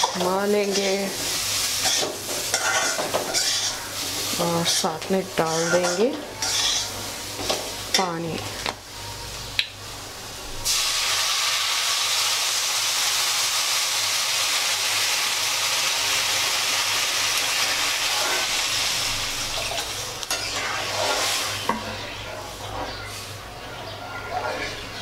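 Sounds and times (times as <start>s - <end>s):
water hissing in hot pan: 0.0s - 7.9s, 10.6s - 21.7s.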